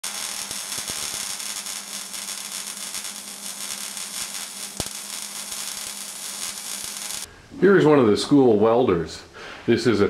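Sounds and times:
welding arc crackling: 0.0s - 7.3s.

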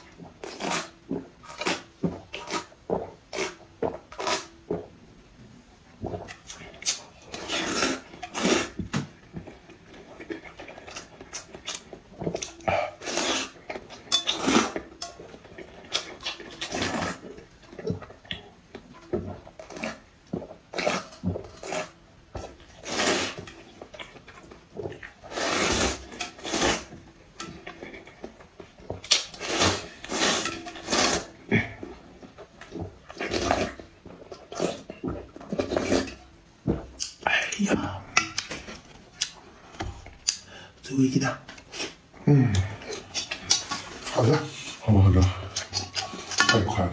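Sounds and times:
slurping noodles: 0.0s - 4.9s, 6.2s - 18.2s, 19.1s - 28.3s, 29.0s - 36.3s
chewing: 6.1s - 36.2s, 41.5s - 46.9s.

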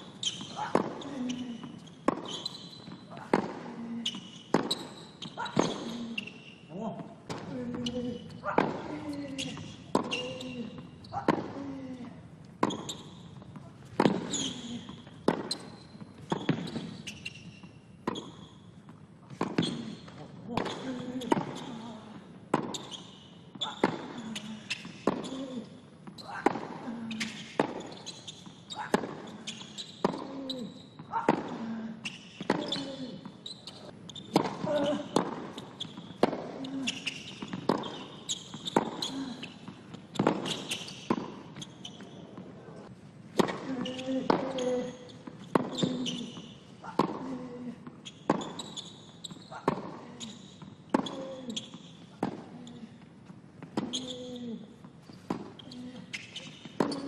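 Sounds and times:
racket hitting tennis ball: 0.0s - 1.0s, 1.6s - 6.3s, 7.2s - 11.6s, 12.6s - 17.3s, 19.3s - 21.8s, 22.5s - 23.0s, 23.6s - 25.4s, 26.0s - 28.0s, 28.8s - 30.4s, 31.2s - 33.4s, 34.2s - 42.5s, 43.3s - 54.1s, 55.2s - 57.0s
sneaker squeaks on court: 0.0s - 3.4s, 4.0s - 7.0s, 7.6s - 11.4s, 12.6s - 18.7s, 19.3s - 22.0s, 22.6s - 42.4s, 43.5s - 53.0s, 53.8s - 57.0s.

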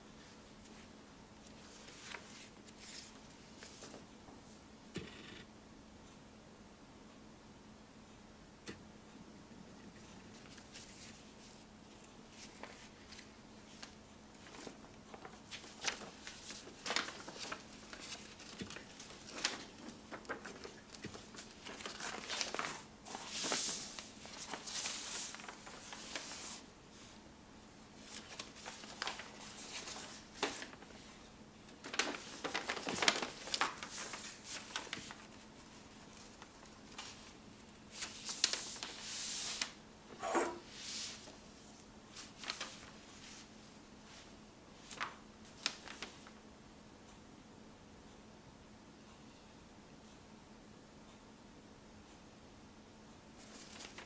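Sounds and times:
paper map crinkling and rustling: 0.2s - 4.2s, 9.9s - 27.1s, 28.0s - 39.8s, 40.6s - 46.4s, 53.4s - 54.0s.

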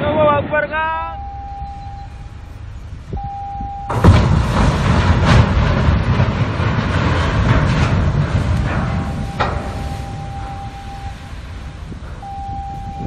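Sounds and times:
ships colliding grinding rumble: 0.0s - 13.0s
short steady tone: 1.2s - 2.4s, 9.2s - 11.4s.

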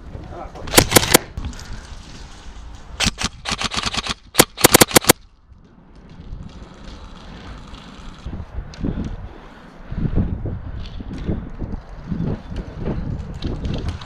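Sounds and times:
airsoft gun firing bursts: 0.7s - 1.3s, 3.0s - 5.2s.

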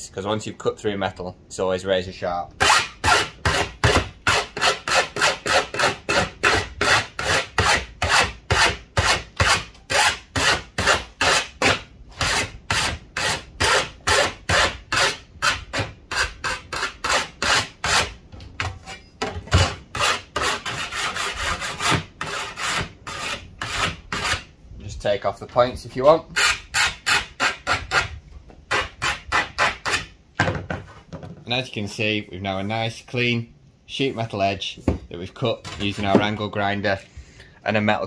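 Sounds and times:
file rasping on metal: 2.6s - 18.2s, 19.6s - 24.5s, 26.3s - 28.1s, 28.7s - 30.1s.

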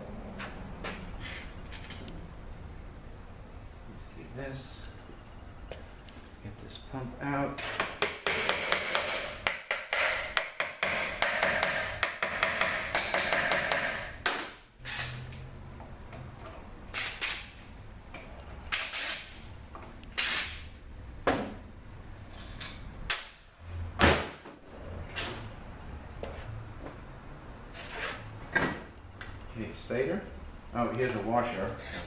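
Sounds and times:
metal parts clinking: 1.2s - 2.1s.

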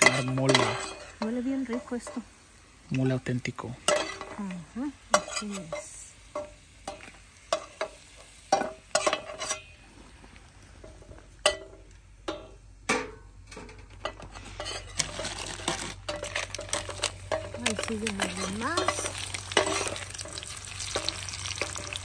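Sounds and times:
utensil scraping a pot: 0.0s - 2.3s, 8.5s - 10.0s, 14.0s - 22.0s
chiles sizzling in oil: 0.0s - 22.0s.

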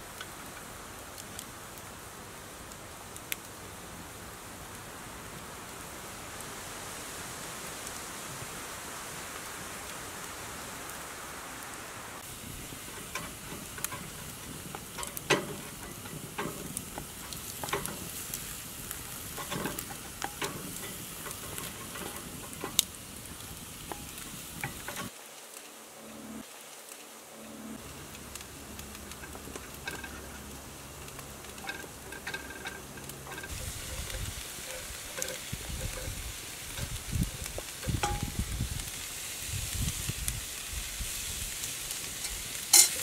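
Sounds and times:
meat sizzling in a pot: 5.5s - 25.8s, 27.8s - 43.0s
wooden spatula scraping a pot: 12.5s - 25.1s, 31.5s - 37.0s.

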